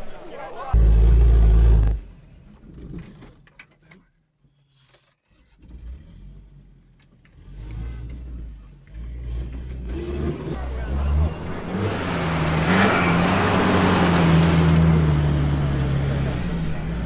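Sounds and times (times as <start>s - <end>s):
car engine running: 8.1s - 17.0s.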